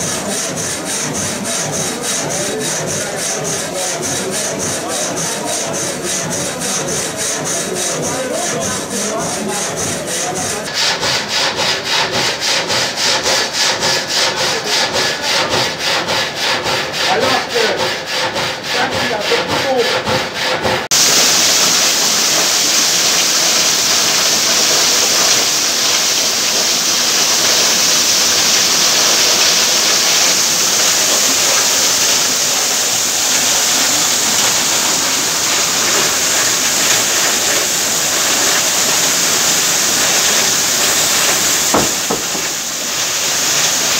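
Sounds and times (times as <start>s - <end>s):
frame saw cutting a log: 0.0s - 43.9s
spinning shafts pulleys and belts: 0.0s - 43.9s
rushing water: 20.9s - 43.9s.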